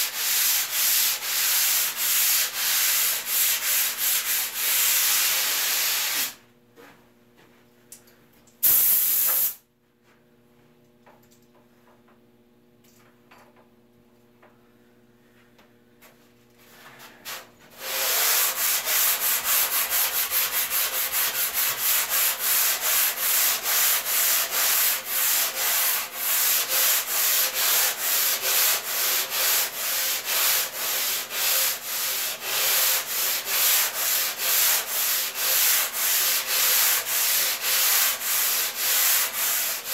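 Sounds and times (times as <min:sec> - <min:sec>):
sanding block rasping: 0:00.0 - 0:06.3, 0:17.8 - 0:39.9
sanding strokes: 0:00.0 - 0:06.3, 0:17.7 - 0:39.9
faint steady hum: 0:09.6 - 0:17.9.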